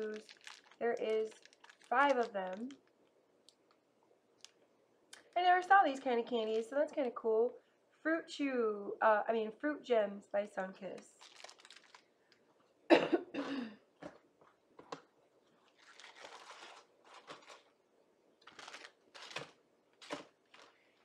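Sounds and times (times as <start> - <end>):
plastic packaging crinkling: 0.0 - 3.8, 11.0 - 12.5, 15.6 - 17.8, 18.4 - 21.0
person coughing: 12.9 - 13.8.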